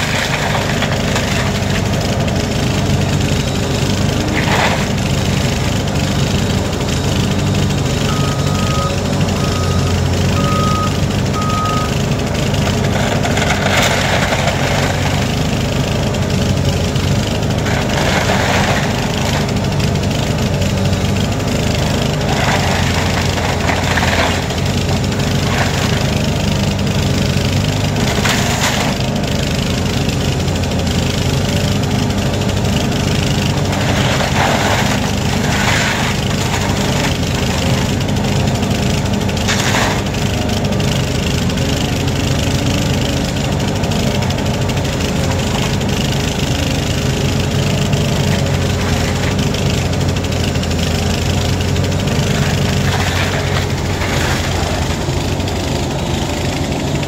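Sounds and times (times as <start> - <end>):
diesel demolition machinery running: 0.0 - 57.0
reversing alarm beeping: 8.0 - 12.0.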